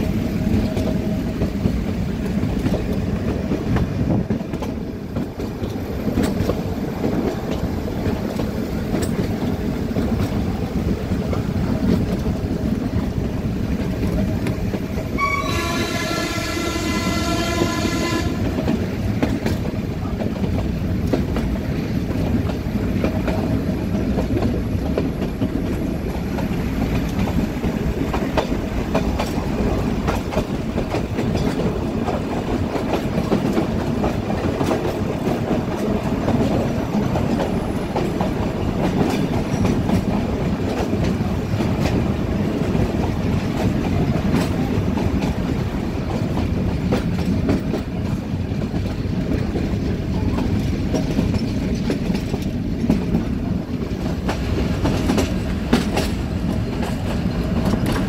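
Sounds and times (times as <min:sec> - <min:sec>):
train wheels clattering over rail joints: 0:00.0 - 0:15.2, 0:16.2 - 0:58.0.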